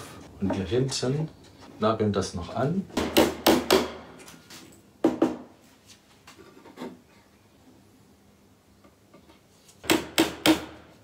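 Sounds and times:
hammer driving nails into wood: 0:03.0 - 0:04.2, 0:09.8 - 0:10.9.

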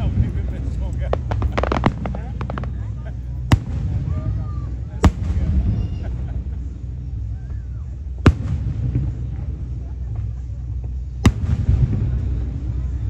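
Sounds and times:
firework booms: 0:00.0 - 0:06.5, 0:08.2 - 0:10.3, 0:11.2 - 0:13.0
continuous low rumble: 0:00.0 - 0:13.0.

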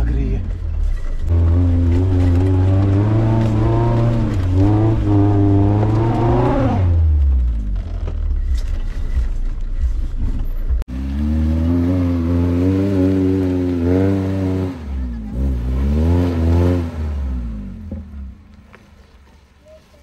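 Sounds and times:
car engine revving hard: 0:01.3 - 0:07.2, 0:10.9 - 0:17.8.

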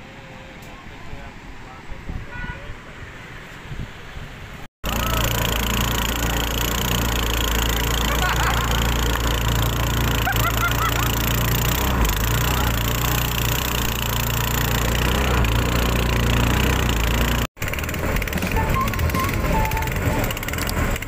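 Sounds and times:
wind and water rushing: 0:00.0 - 0:04.7
boat engine running: 0:04.8 - 0:21.0.

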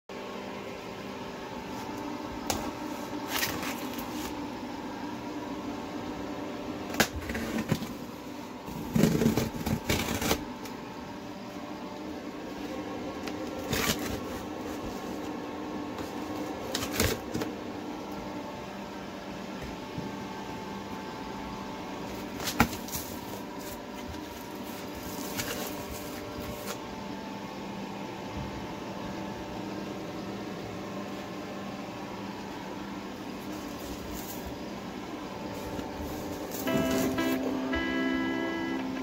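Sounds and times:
machine hum: 0:00.1 - 0:39.0.

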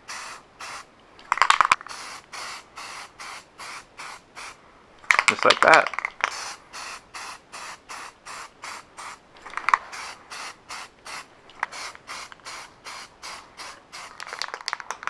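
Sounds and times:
aerosol can spraying in bursts: 0:00.0 - 0:00.9, 0:01.8 - 0:04.6, 0:06.3 - 0:09.2, 0:09.8 - 0:14.4.

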